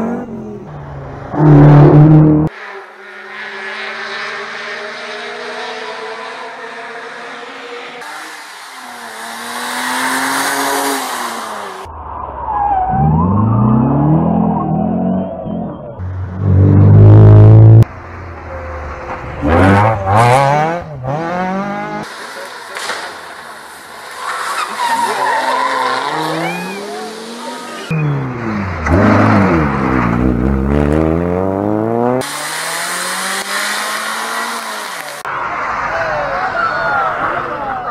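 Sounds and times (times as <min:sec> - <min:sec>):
distant rally car engine: 0:00.0 - 0:12.2, 0:12.8 - 0:37.9
car engine revving hard: 0:03.1 - 0:11.9, 0:16.3 - 0:17.9, 0:19.4 - 0:22.1, 0:25.6 - 0:35.3
tyres squealing: 0:24.2 - 0:28.1.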